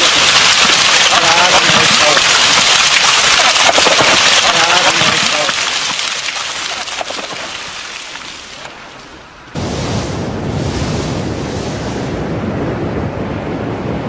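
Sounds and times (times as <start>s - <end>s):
mudslide rushing hiss: 0.0s - 6.9s
mudflow roaring down valley: 0.0s - 7.8s, 8.5s - 14.0s.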